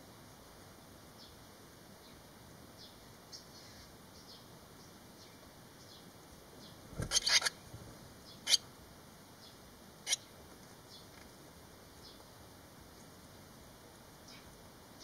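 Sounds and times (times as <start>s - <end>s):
nestlings peeping: 2.8s - 8.7s, 9.4s - 11.2s
sharp scratchy sounds: 6.9s - 7.6s.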